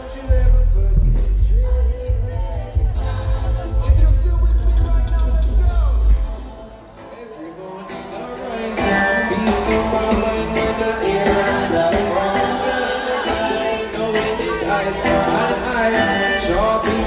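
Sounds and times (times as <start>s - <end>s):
live reggae band playing: 0.0s - 17.0s
deep bass: 0.2s - 6.5s.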